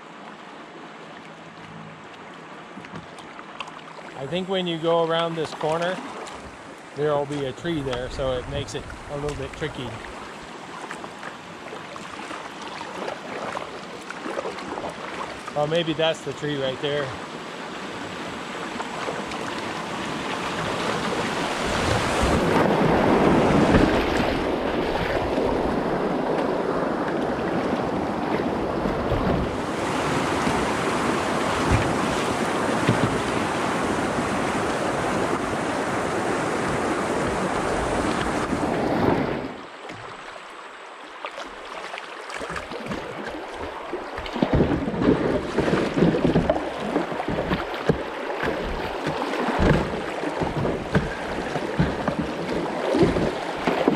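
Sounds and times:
paddle splashes: 0:00.0 - 0:53.9
whitewater rushing: 0:11.6 - 0:40.4, 0:41.5 - 0:53.9.

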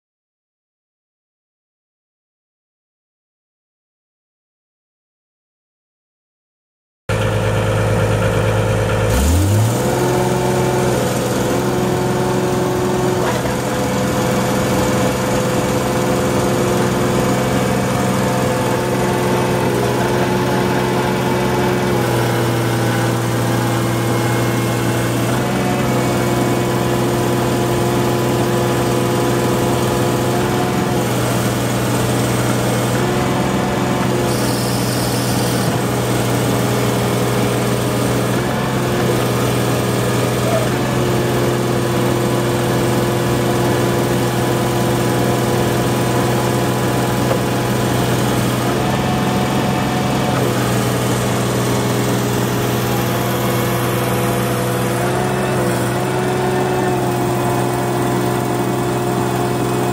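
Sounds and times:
loader engine revving: 0:07.1 - 0:59.9.

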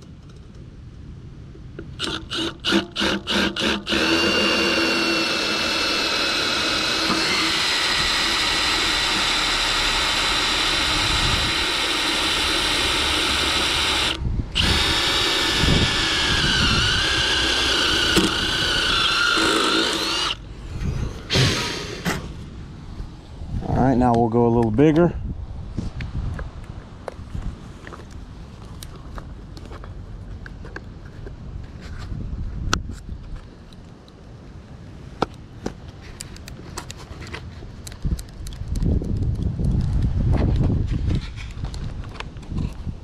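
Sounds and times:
cordless drill whining: 0:02.0 - 0:20.4.

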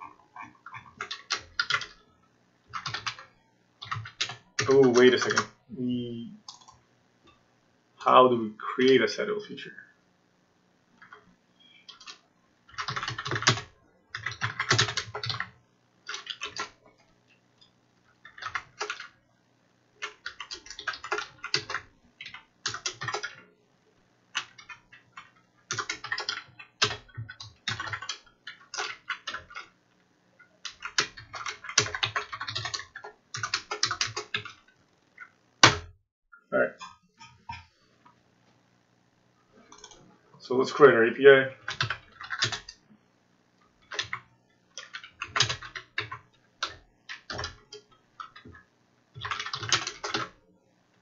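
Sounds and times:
typing on computer keyboard: 0:00.1 - 0:02.0, 0:02.7 - 0:05.5, 0:06.5 - 0:06.8, 0:11.8 - 0:16.8, 0:18.2 - 0:19.2, 0:20.0 - 0:23.4, 0:24.3 - 0:29.7, 0:30.4 - 0:35.8, 0:41.6 - 0:42.8, 0:43.8 - 0:50.4.

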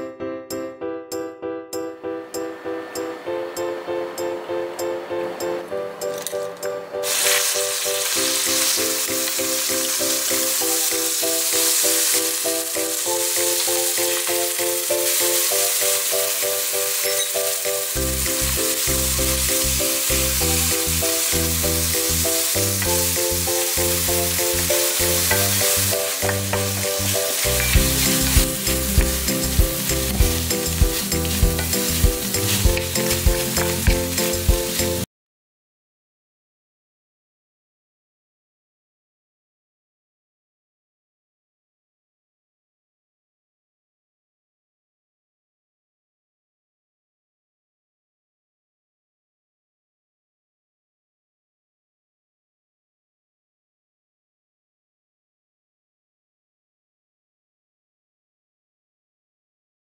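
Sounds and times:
instrumental background music: 0:00.0 - 0:35.1
shrimp sizzling in oil: 0:07.0 - 0:35.0.

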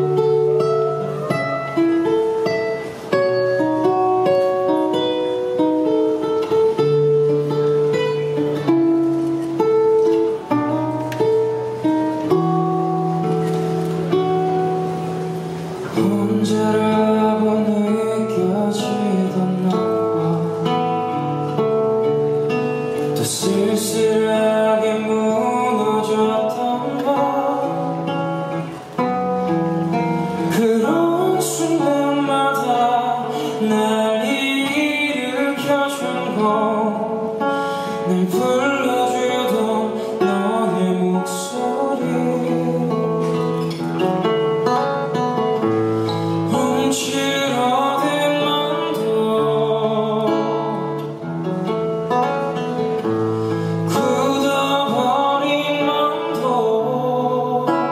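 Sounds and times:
acoustic guitar: 0:00.0 - 0:57.9
man singing into a microphone: 0:15.8 - 0:21.9, 0:22.7 - 0:28.9, 0:30.2 - 0:43.8, 0:46.0 - 0:51.3, 0:53.6 - 0:57.9.

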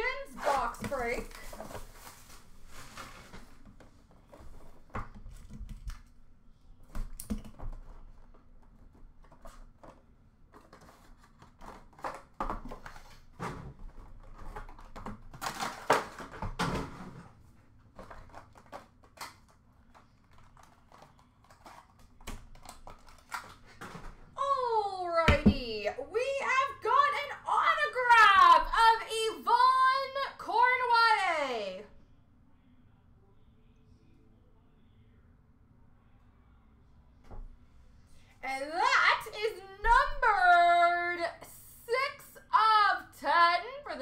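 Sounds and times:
plastic wrap crinkling: 0:00.1 - 0:03.7, 0:17.9 - 0:23.8.

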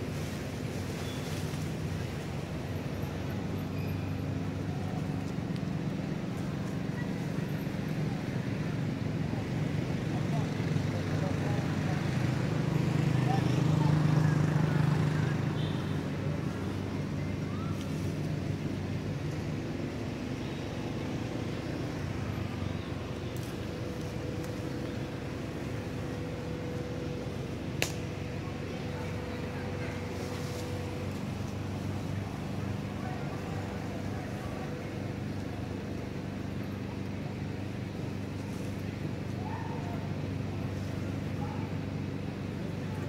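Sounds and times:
low mechanical hum: 0:00.0 - 0:43.0
vehicle engine drone: 0:00.0 - 0:43.0.

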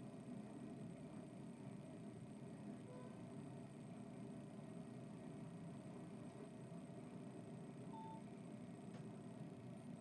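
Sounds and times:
short faint beep: 0:07.9 - 0:08.2.

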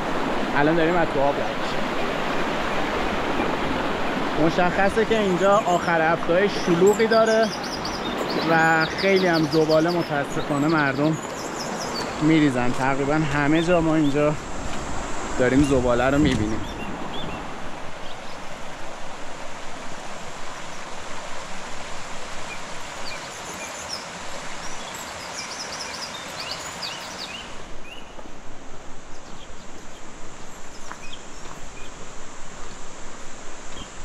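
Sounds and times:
birds chirping: 0:00.0 - 0:34.0
stream running over rocks: 0:00.0 - 0:34.0.

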